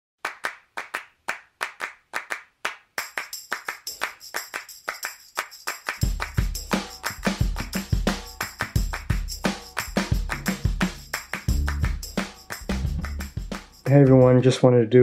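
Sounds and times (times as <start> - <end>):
rhythmic hand claps: 0.2 - 14.4
intro music: 6.0 - 14.4
deep beat: 6.0 - 14.5.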